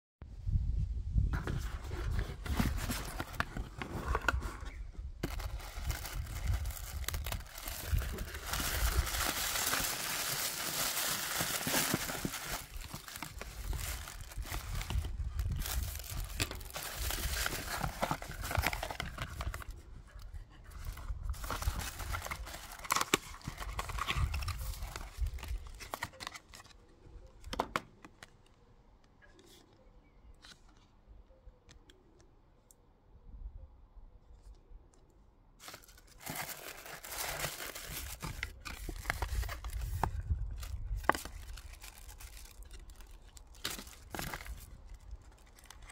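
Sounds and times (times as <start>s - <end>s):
cardboard box being opened: 1.3s - 26.7s, 35.6s - 45.9s
tissue paper rustling: 5.2s - 19.7s, 20.7s - 26.7s, 35.6s - 43.1s.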